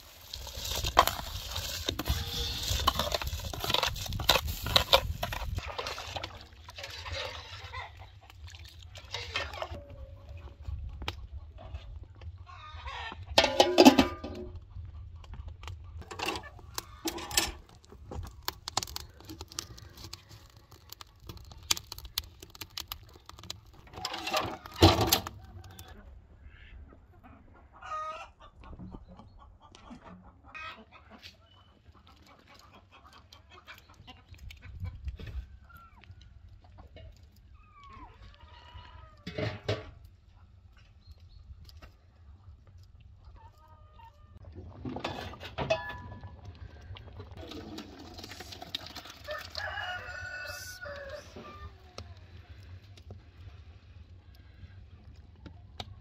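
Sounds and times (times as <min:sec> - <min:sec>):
chickens clucking: 0:07.0 - 0:08.5, 0:25.3 - 0:35.4
rooster crowing: 0:49.3 - 0:51.7.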